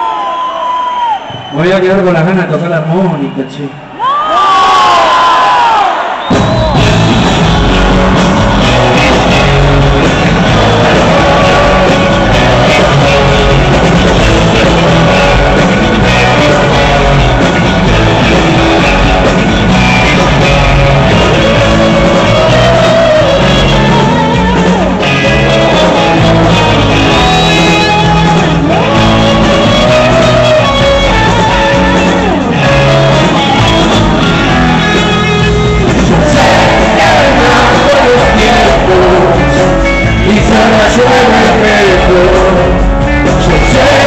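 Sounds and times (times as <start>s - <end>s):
live rock band playing: 6.3s - 44.0s
man singing: 8.6s - 17.5s, 20.0s - 34.2s, 35.3s - 44.0s.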